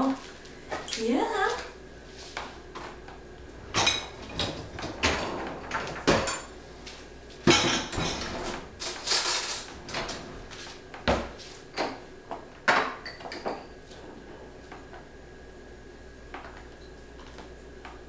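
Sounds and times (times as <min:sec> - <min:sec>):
dishwasher door shutting: 0:03.7 - 0:06.5, 0:07.5 - 0:12.0
dishes clinking in dishwasher: 0:03.7 - 0:06.6, 0:07.4 - 0:10.4, 0:12.7 - 0:15.0.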